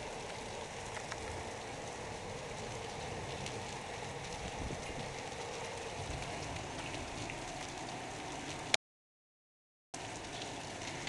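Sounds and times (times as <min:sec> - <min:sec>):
heavy rain hissing: 0:00.0 - 0:08.7.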